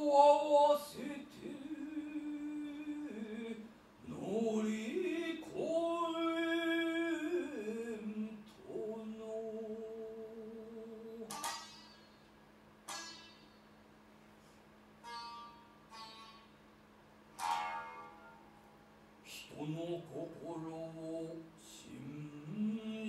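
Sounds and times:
solo voice chanting: 0.0 - 11.6, 19.2 - 23.0.

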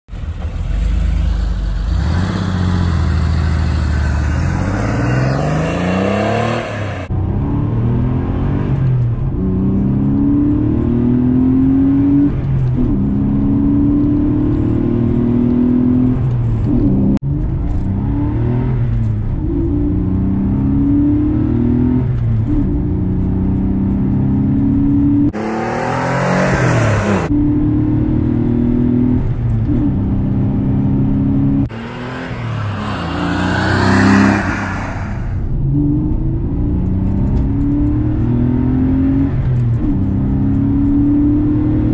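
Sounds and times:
car engine accelerating hard: 0.3 - 41.9
car driving past: 31.7 - 35.5.

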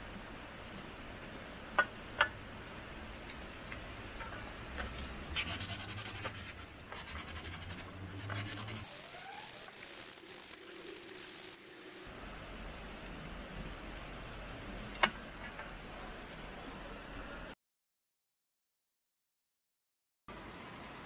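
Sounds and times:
scratching strokes on wood: 5.3 - 11.6.

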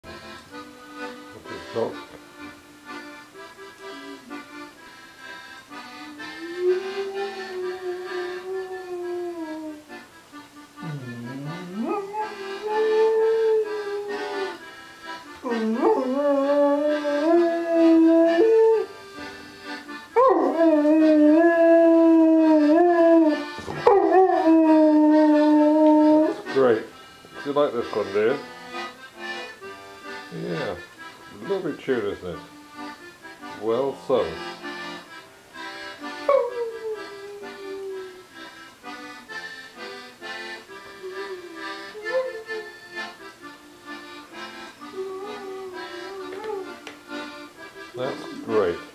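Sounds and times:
melodeon playing a waltz: 0.1 - 48.9
dog howling: 6.4 - 9.9, 10.8 - 14.6, 15.4 - 18.9, 20.2 - 26.5, 36.3 - 38.2, 41.0 - 42.7, 44.9 - 46.8.

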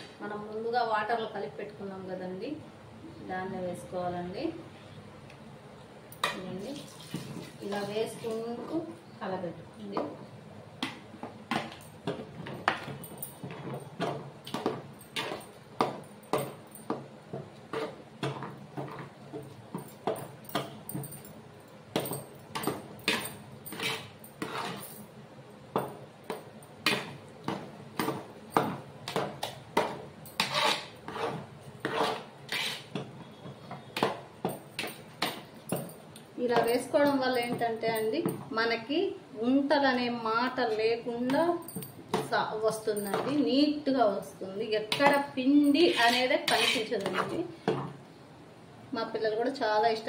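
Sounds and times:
ladle scraping a metal pot: 30.4 - 32.9, 45.8 - 47.3.

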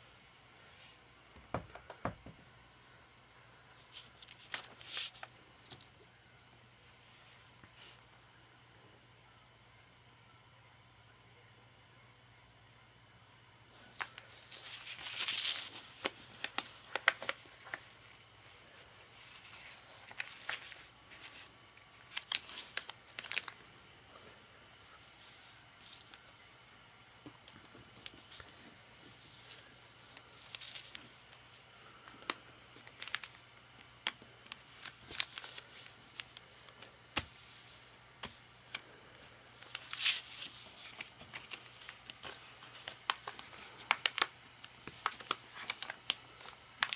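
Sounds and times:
paper rustling and crinkling: 3.7 - 5.9, 13.7 - 23.8, 27.2 - 33.4, 34.0 - 46.9.

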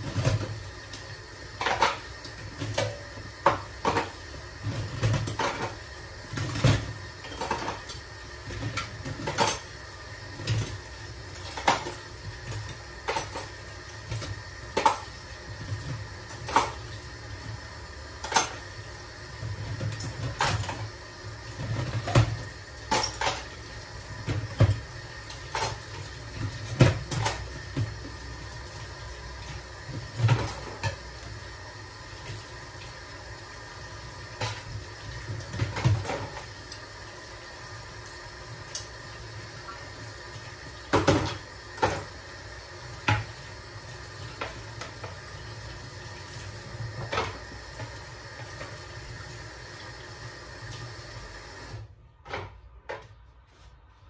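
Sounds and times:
dishes and plastic cups clattering: 21.7 - 23.5.

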